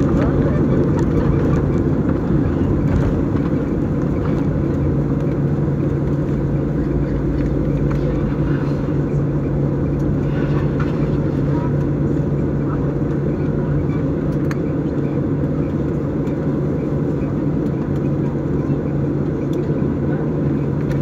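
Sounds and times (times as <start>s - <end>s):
airplane cabin engine rumble: 0.0s - 21.0s.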